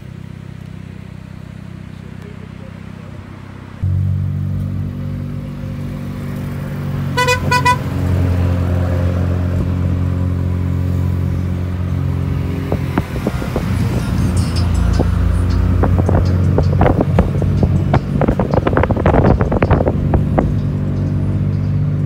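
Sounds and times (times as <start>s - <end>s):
car driving hum: 0.0s - 22.0s
car horn beeps: 7.1s - 8.0s.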